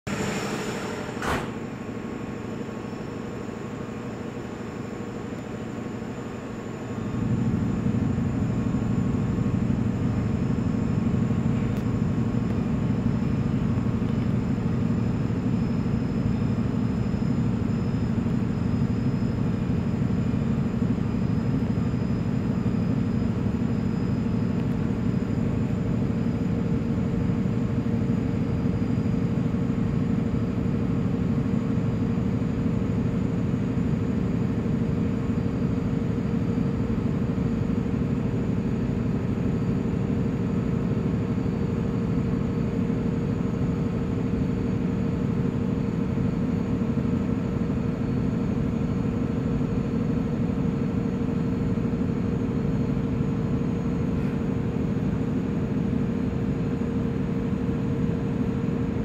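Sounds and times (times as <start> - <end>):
generator engine droning: 0.1 - 59.0
single click: 1.2 - 1.6.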